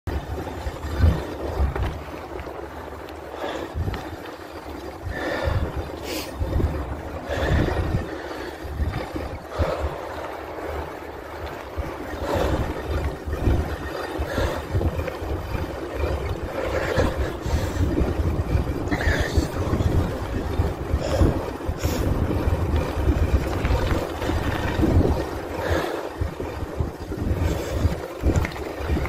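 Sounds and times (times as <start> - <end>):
bicycle rolling hiss: 0.1 - 29.0
sharp clicks and rattles: 0.1 - 29.0
wind buffeting microphone: 0.1 - 29.0.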